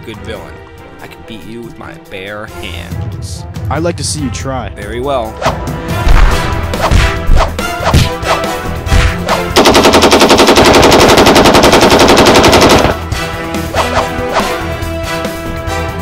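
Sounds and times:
machine-gun fire: 9.6s - 13.0s.

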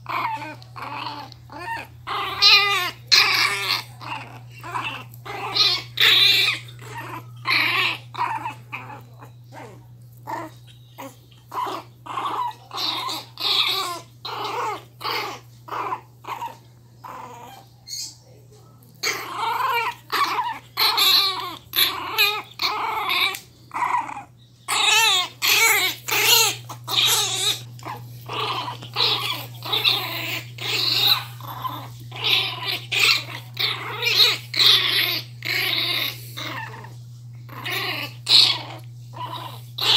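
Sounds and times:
puppies play-growling: 0.0s - 39.9s
steady low hum: 0.0s - 39.9s.

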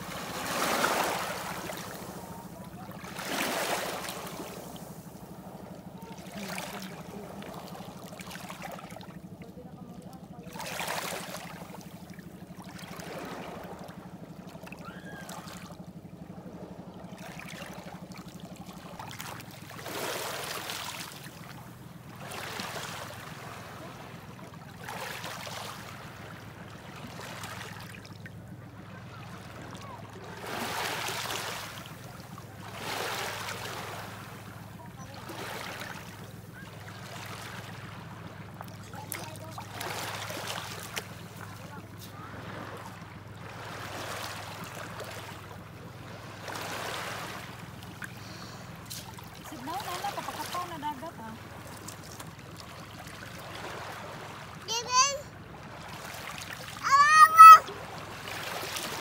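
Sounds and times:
waves washing over stony beach: 0.0s - 5.2s, 30.2s - 45.5s, 46.1s - 52.4s, 55.7s - 59.0s
steady low hum: 0.0s - 54.5s.

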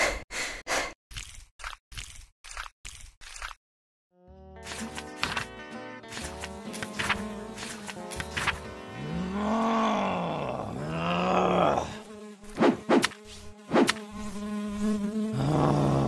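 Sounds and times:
housefly buzzing: 4.3s - 16.0s.

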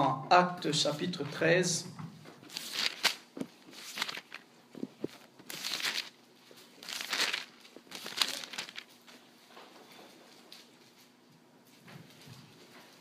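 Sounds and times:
paper pages rustling: 2.4s - 9.2s.

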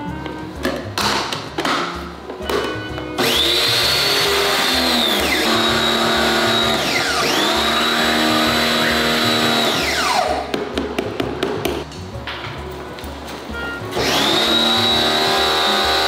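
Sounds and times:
pressure washer pump whining: 3.2s - 10.4s, 13.9s - 16.0s.

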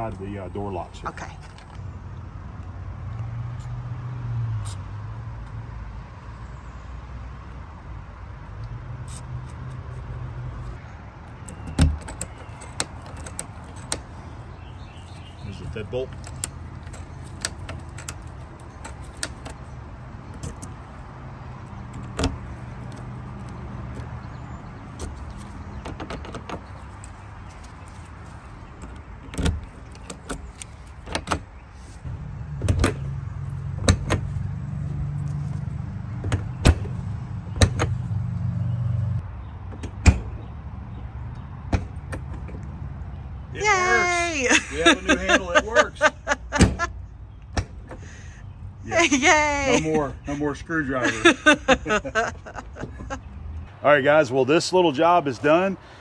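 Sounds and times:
door lock latch clicking: 11.3s - 14.1s, 16.1s - 19.6s.

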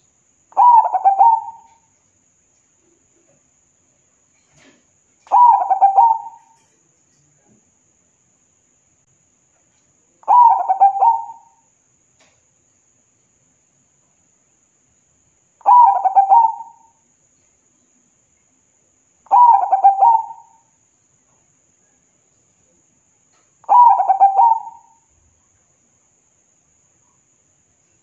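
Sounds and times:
dove cooing: 0.6s - 1.8s, 5.2s - 6.7s, 10.2s - 11.6s, 15.6s - 16.9s, 19.3s - 20.6s, 23.6s - 25.0s.

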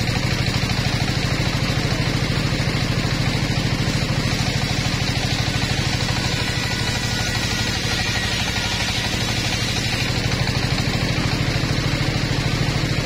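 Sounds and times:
sawmill engine chugging: 0.0s - 13.0s
saw blade ripping plank: 3.4s - 12.1s.

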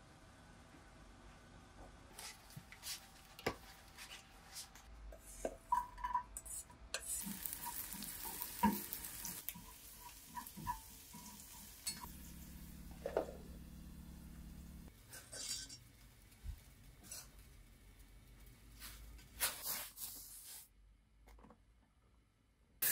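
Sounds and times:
chopsticks tapping and scraping pan: 5.2s - 12.1s
garlic sizzling in oil: 7.0s - 19.6s.

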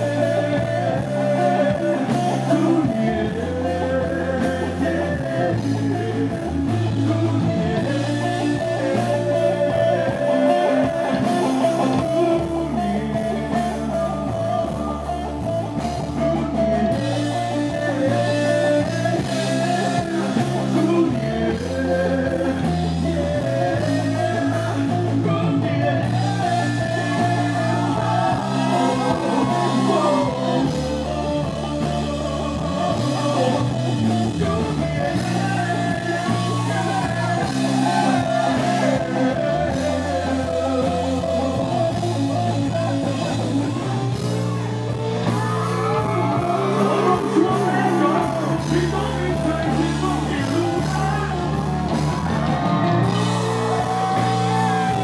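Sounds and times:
live rock band playing: 0.0s - 55.0s
person singing into microphone: 0.0s - 55.0s.

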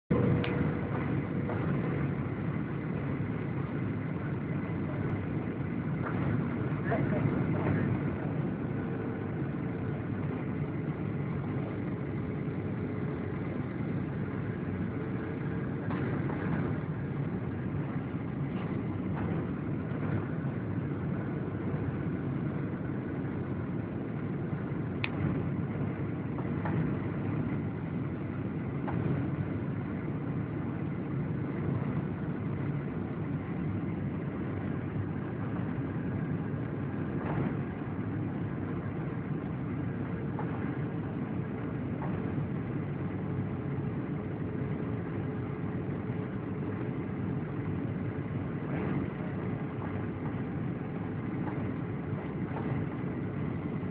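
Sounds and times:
airflow over fuselage: 0.0s - 53.9s
faint steady hum: 0.0s - 53.9s
jet engine rumble: 0.0s - 53.9s.

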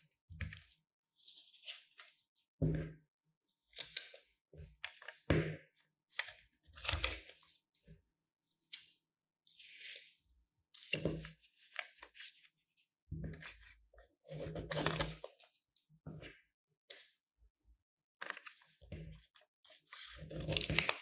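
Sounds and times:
paper rustling: 18.2s - 18.8s, 19.7s - 21.0s.

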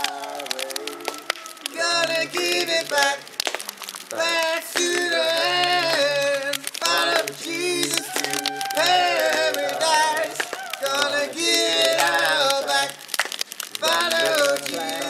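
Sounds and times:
person singing wordlessly: 0.0s - 13.2s, 13.8s - 15.0s.

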